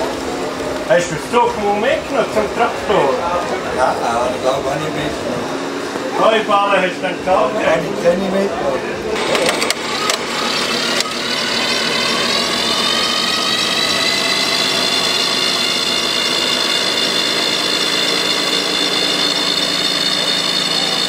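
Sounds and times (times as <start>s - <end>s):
model vehicle motor whining: 9.2s - 21.0s
sharp clicks: 9.3s - 10.3s.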